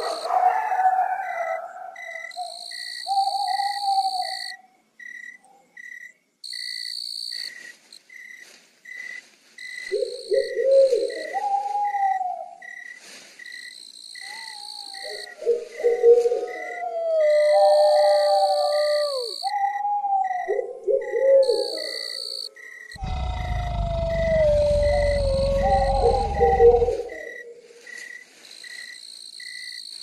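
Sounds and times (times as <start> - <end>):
crickets chirping: 0.0 - 30.0
owl-like low wavering calls: 0.2 - 4.5, 9.9 - 12.6, 14.2 - 22.0, 23.0 - 27.6
high insect trills: 2.0 - 11.3, 12.6 - 19.5, 21.6 - 30.0.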